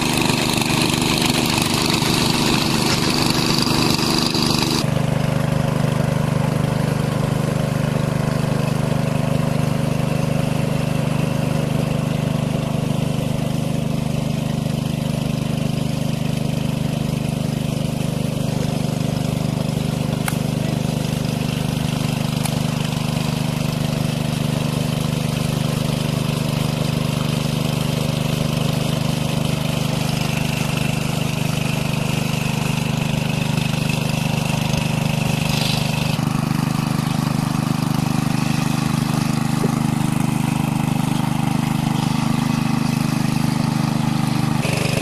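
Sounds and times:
water pump engine running: 0.0s - 45.0s.

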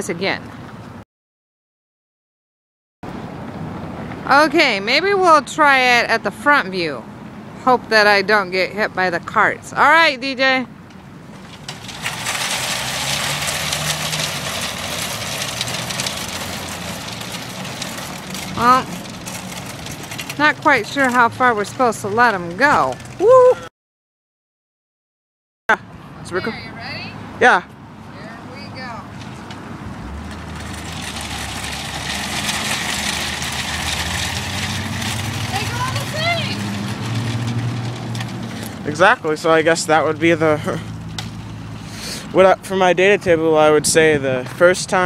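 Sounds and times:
shopping carts rolling on asphalt: 4.2s - 7.0s, 7.7s - 23.6s, 28.2s - 45.0s.

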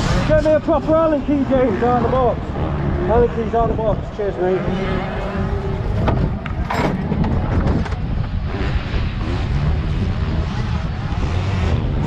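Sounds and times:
motorcycle engines running: 0.0s - 12.0s
wind buffeting microphone: 3.1s - 11.2s.

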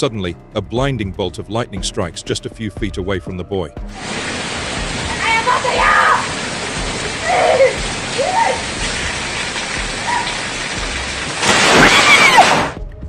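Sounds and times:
heavy rain pouring: 3.9s - 12.8s
water splashing from drainpipe: 4.0s - 12.8s
person crying out: 7.2s - 8.7s
loud thunder crash: 11.4s - 12.8s.

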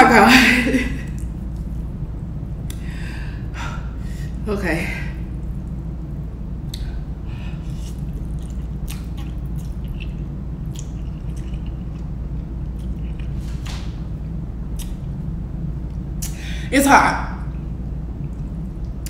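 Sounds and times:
low hum: 0.0s - 19.0s
person slurping and chewing: 7.6s - 12.0s
wet smacks and sucks: 7.7s - 12.1s.

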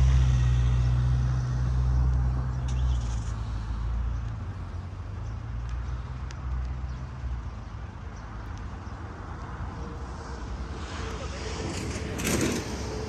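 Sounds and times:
low rumble of road traffic: 0.0s - 13.0s
faint light ticks: 4.2s - 4.5s, 5.2s - 7.0s, 8.4s - 8.8s.

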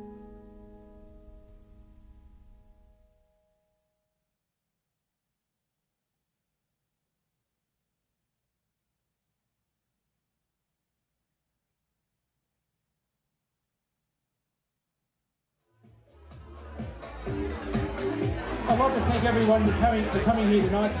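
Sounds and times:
night insects chirping: 0.0s - 4.4s.

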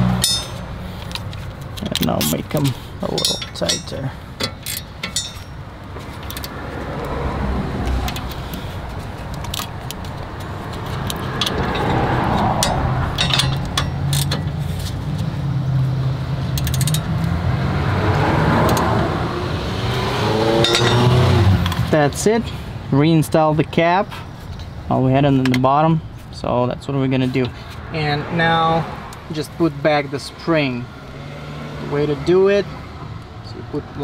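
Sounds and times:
road traffic: 0.0s - 34.0s
metal tool clicks and clinks: 0.2s - 2.4s, 3.1s - 5.6s, 11.0s - 14.5s, 16.6s - 17.1s, 20.6s - 21.8s.

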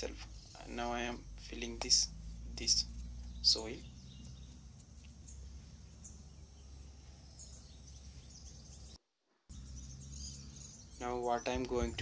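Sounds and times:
low rumble and hiss: 0.0s - 9.0s.

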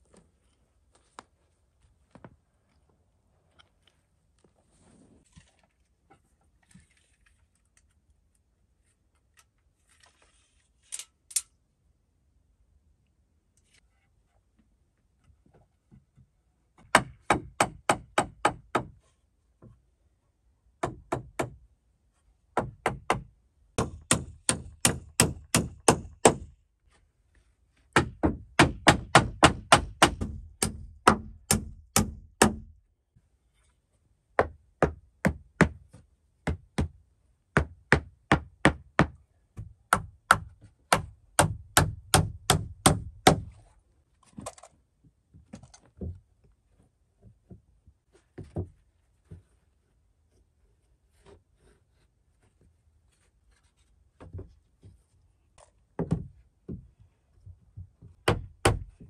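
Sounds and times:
hammer nailing wooden boards: 16.8s - 19.0s, 20.8s - 21.6s, 22.5s - 26.6s, 27.9s - 32.8s, 34.4s - 43.6s, 58.1s - 59.0s.

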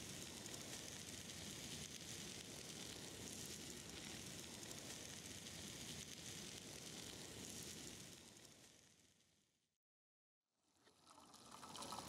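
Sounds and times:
fat sizzling in a pan: 0.0s - 9.0s
wood fire crackling: 0.1s - 8.6s.

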